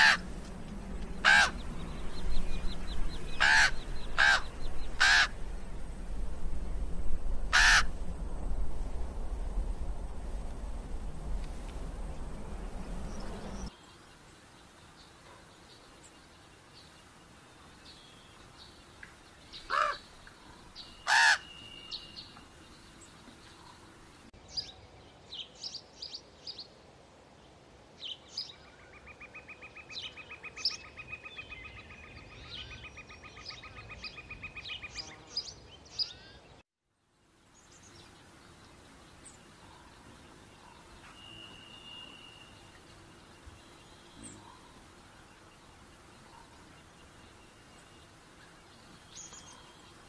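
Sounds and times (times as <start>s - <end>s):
harsh bird calls: 0.0s - 5.8s, 7.5s - 8.0s, 19.5s - 22.4s
rapid pulsed bird trill: 37.5s - 50.0s.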